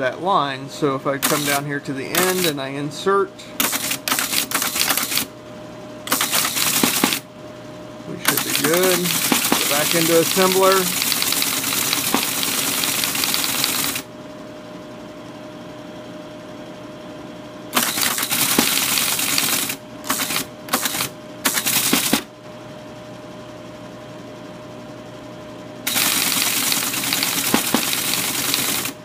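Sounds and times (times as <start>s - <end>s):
teletype motor humming: 1.1s - 2.6s, 3.5s - 5.4s, 6.0s - 7.3s, 8.0s - 14.1s, 17.7s - 22.3s, 25.8s - 29.0s
teletype rapid type strikes: 1.2s - 2.6s, 3.6s - 5.3s, 6.1s - 7.3s, 8.2s - 14.1s, 17.8s - 22.3s, 25.9s - 29.0s.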